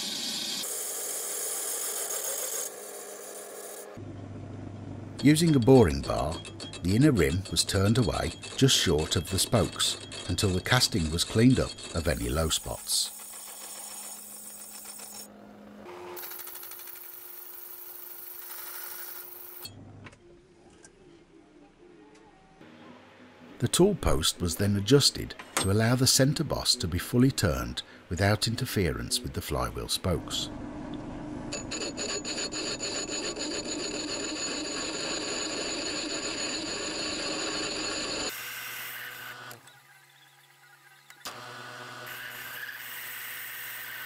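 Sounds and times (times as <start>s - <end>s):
lathe humming: 31.6s - 43.9s.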